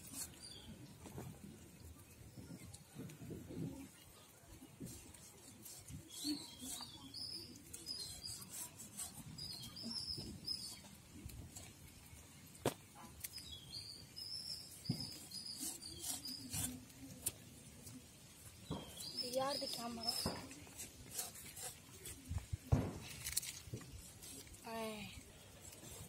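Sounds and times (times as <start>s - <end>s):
small bird chirping: 5.7s - 11.0s, 13.0s - 16.8s.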